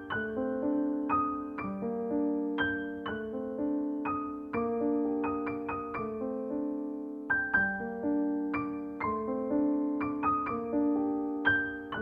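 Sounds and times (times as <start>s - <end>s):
piano music: 0.0s - 12.0s.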